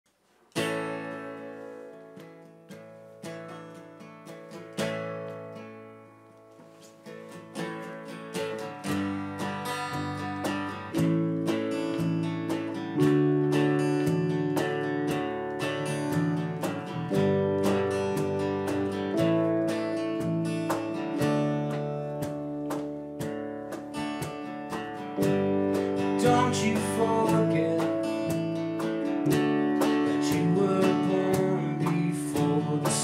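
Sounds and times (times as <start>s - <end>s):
acoustic guitar strumming chords: 0.5s - 33.0s
keyboard playing: 8.5s - 33.0s
low bass notes: 9.8s - 33.0s.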